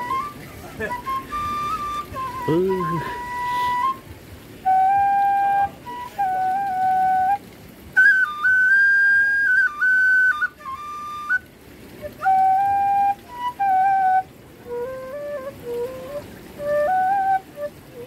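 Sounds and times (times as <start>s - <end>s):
bamboo flute playing held notes: 0.0s - 18.0s
flute player breathing: 2.3s - 4.0s.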